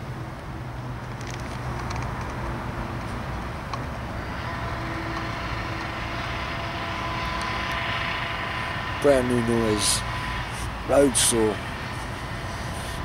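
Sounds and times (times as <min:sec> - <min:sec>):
low machinery rumble: 0:00.0 - 0:13.0
cut-off saw whining: 0:04.2 - 0:13.0.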